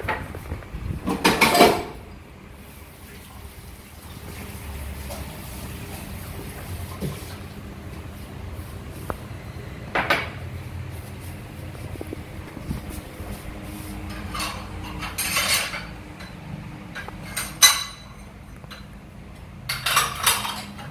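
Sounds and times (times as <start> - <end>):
low steady hum: 0.0 - 20.9
plates and cutlery clinking: 1.0 - 2.0, 12.0 - 19.0, 19.6 - 20.9.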